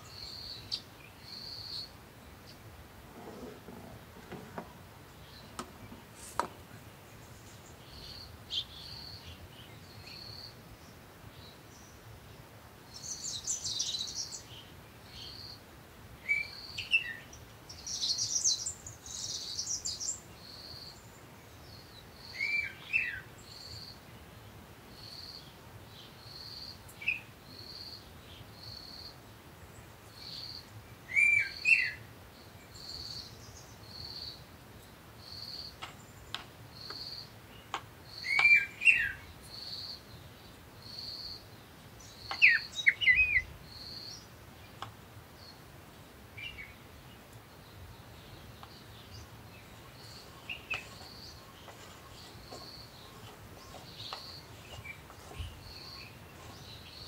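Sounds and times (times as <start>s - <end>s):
birds giving curved chirps: 35.2s - 40.0s, 47.8s - 57.0s.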